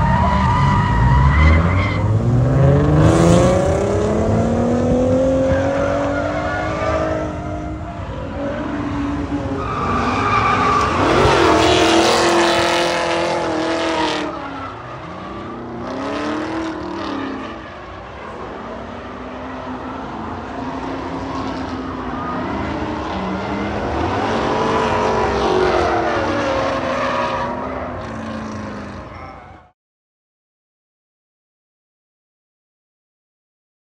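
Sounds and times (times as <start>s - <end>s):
tires skidding and squealing: 0.0s - 29.7s.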